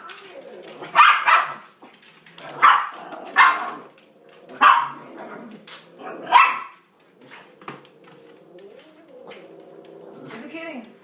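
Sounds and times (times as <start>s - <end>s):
small dog barking: 0.9s - 1.7s, 2.6s - 3.8s, 4.6s - 5.0s, 6.1s - 6.8s.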